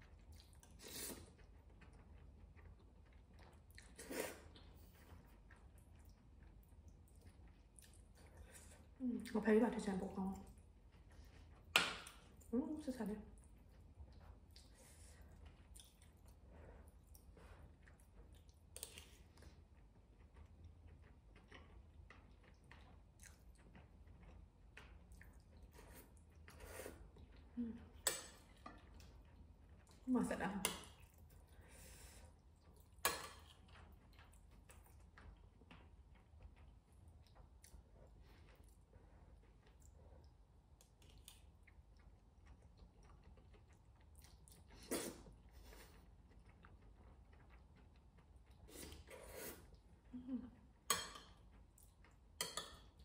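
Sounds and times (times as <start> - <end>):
person chewing: 0.0 - 9.0, 13.4 - 30.1, 30.7 - 53.0
person slurping noodle soup: 48.7 - 49.7.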